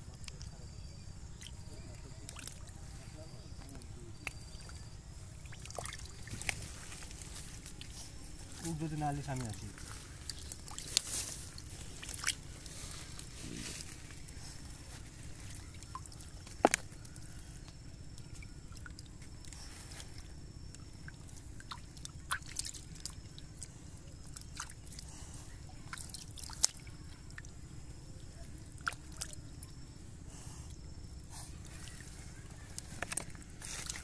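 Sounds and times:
water dripping: 1.3s - 2.8s, 3.6s - 8.0s, 8.6s - 12.8s, 15.4s - 19.6s, 20.2s - 25.0s, 28.4s - 29.8s
hands splashing in muddy water: 4.2s - 6.8s.

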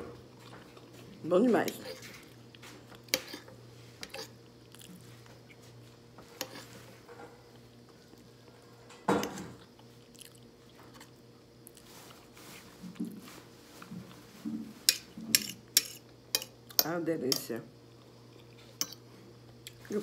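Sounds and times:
steady low hum: 0.0s - 20.0s
person chewing: 4.1s - 5.6s, 9.6s - 11.9s.

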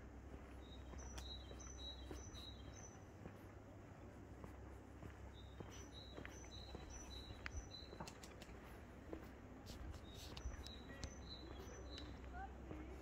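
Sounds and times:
small bird chirping: 0.5s - 3.4s, 5.3s - 8.4s, 9.9s - 12.5s.

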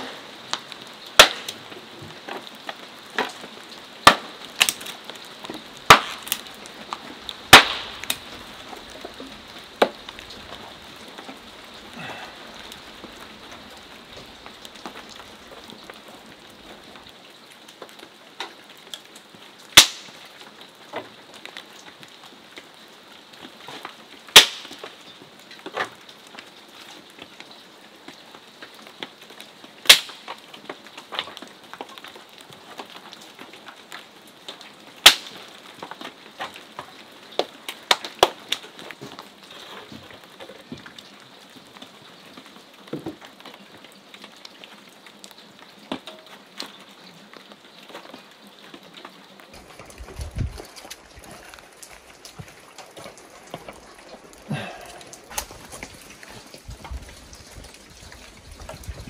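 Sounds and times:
background hiss: 0.0s - 59.0s
hatchet chopping kindling: 1.2s - 1.6s, 4.0s - 4.8s, 5.9s - 6.4s, 7.5s - 8.2s.

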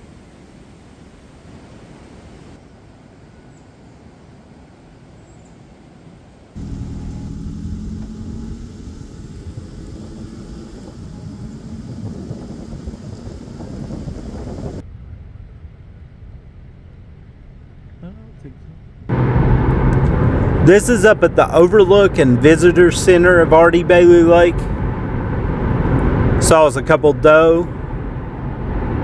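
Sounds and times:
car driving along a road: 6.5s - 29.0s.

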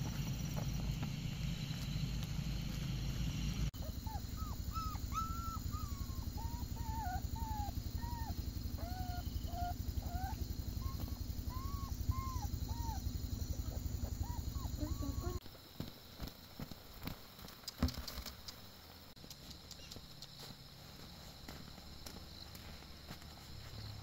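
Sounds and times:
low pulsing hum: 0.0s - 15.4s
puppies whimpering and whining: 3.8s - 15.4s.

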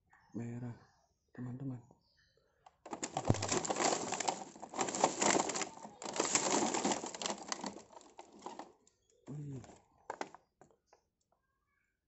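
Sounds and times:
plastic packaging crackling: 2.8s - 10.4s.

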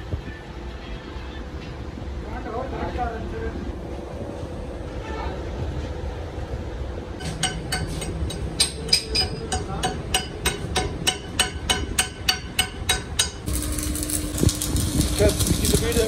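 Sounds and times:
hammer ringing on steel: 7.2s - 13.5s
arc welding crackling hiss: 13.4s - 16.0s.

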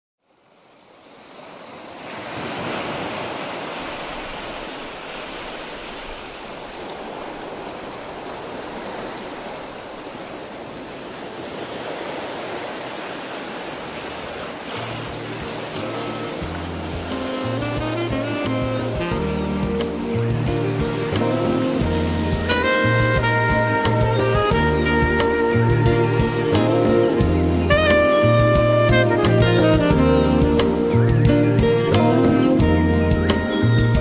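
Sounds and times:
ocean surf rushing: 0.4s - 34.0s
low music notes: 14.8s - 34.0s.

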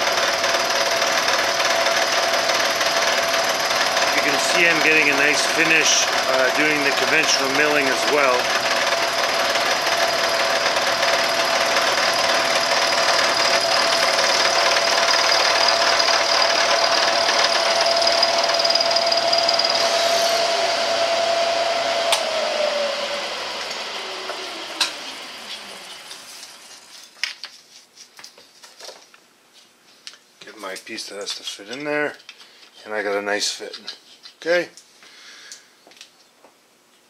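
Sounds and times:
milling machine whine and cutting: 0.0s - 26.8s.

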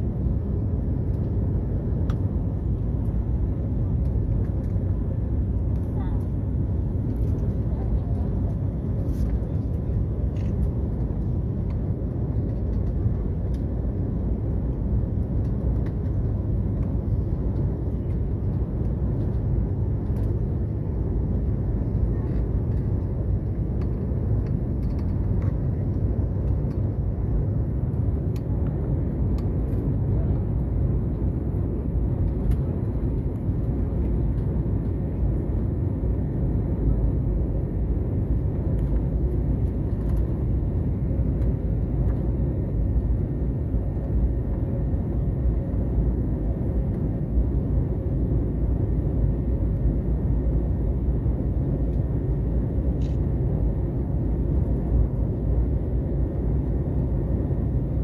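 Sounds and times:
jet engines rumbling: 0.0s - 58.0s.

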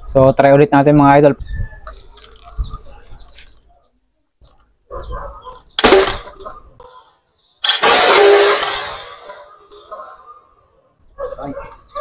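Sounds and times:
toy gun firing with sharp bang: 5.8s - 6.4s, 7.6s - 9.3s.

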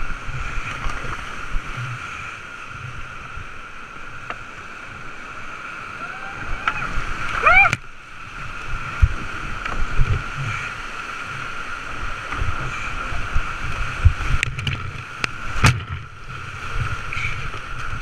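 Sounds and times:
whitewater rapids rushing: 0.0s - 14.4s
paddle strokes in water: 0.0s - 18.0s.

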